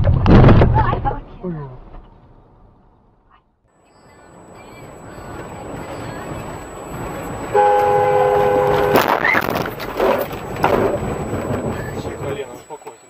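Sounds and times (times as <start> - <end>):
car rough noise and knocks: 0.0 - 1.2, 6.4 - 12.4
sudden bang: 0.0 - 3.1
car horn: 4.8 - 10.2.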